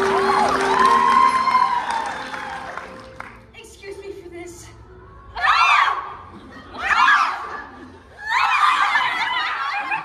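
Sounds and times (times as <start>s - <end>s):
young voices shouting and screaming: 5.0s - 10.0s.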